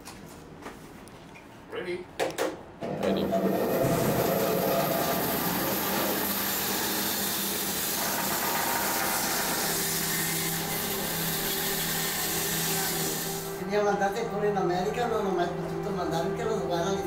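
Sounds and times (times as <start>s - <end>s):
bandsaw cutting wood: 3.1s - 13.6s.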